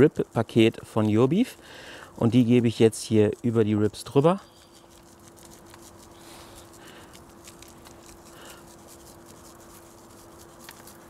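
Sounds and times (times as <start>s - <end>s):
faint steady hum: 0.0s - 11.0s
granules pattering onto meat: 4.4s - 11.0s.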